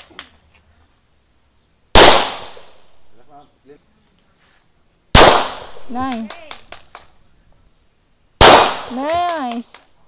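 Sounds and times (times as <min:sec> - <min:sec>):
pistol shots with echo: 0:02.0 - 0:02.8, 0:05.2 - 0:05.9, 0:08.4 - 0:09.0.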